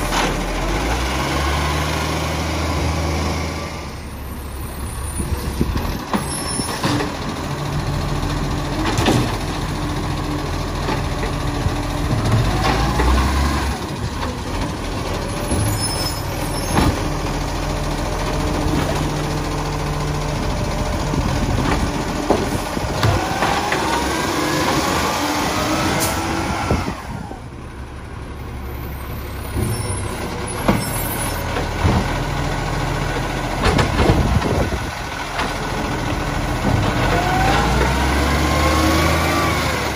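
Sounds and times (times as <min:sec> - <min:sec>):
garbage truck idling: 0:02.6 - 0:24.8, 0:26.8 - 0:38.4
hydraulic arm lifting bins: 0:05.2 - 0:27.6
bins knocking against hopper: 0:21.5 - 0:24.1, 0:33.6 - 0:34.7.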